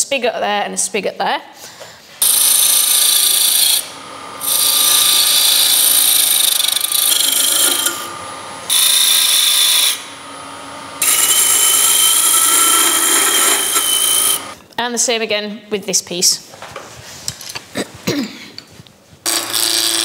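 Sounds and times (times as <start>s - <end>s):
lathe tool scraping wood: 2.2s - 14.6s, 19.2s - 20.0s.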